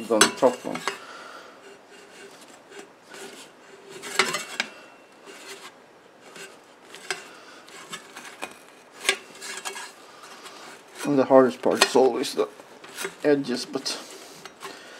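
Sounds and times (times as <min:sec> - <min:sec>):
sheet metal scraping against pipe: 0:01.6 - 0:14.8.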